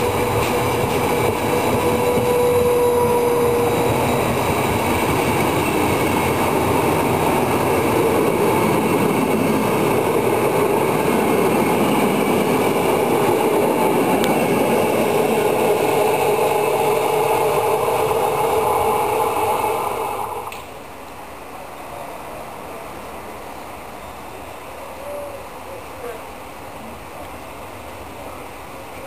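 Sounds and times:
train wheels rumbling on rails: 0:00.0 - 0:20.8
held whine: 0:00.1 - 0:20.6.

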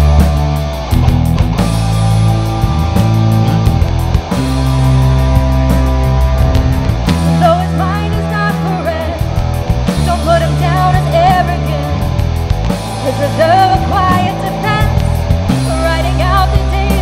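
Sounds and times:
drums and cymbal hits: 0:00.0 - 0:17.0
electric bass: 0:00.0 - 0:17.0
electric guitar: 0:00.0 - 0:17.0
woman singing: 0:07.4 - 0:09.4, 0:10.0 - 0:12.0, 0:13.0 - 0:17.0.

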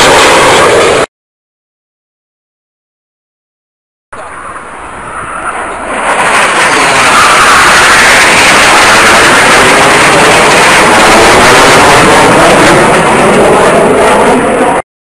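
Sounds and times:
jet roar: 0:00.0 - 0:01.1, 0:04.2 - 0:14.9.

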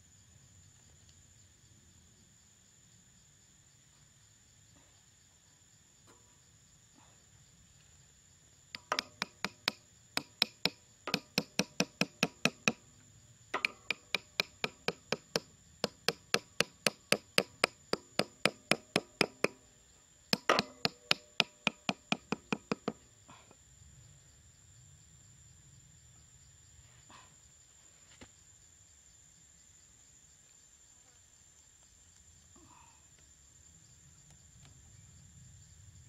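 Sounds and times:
high insect drone: 0:00.0 - 0:36.0
hammer tapping bamboo stakes: 0:08.7 - 0:12.8, 0:13.6 - 0:19.6, 0:20.3 - 0:23.0.

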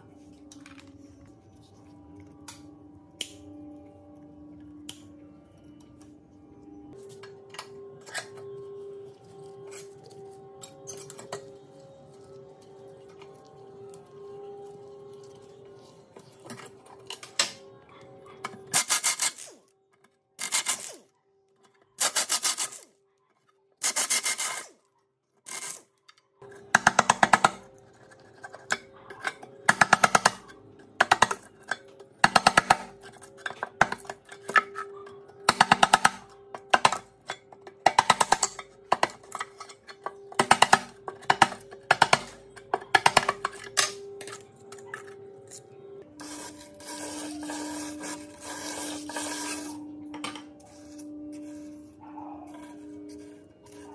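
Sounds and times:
background music: 0:00.0 - 0:24.8, 0:25.5 - 0:53.9
metal blade scraping rust: 0:43.4 - 0:49.9.

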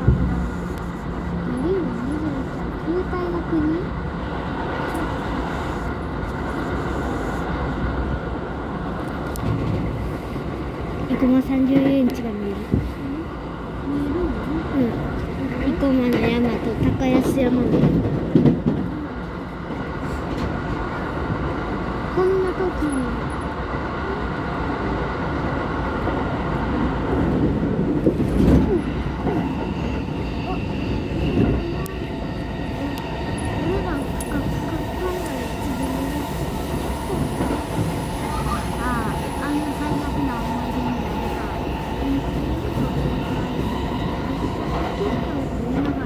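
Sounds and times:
train wheels rumbling on rail: 0:00.0 - 0:46.0.

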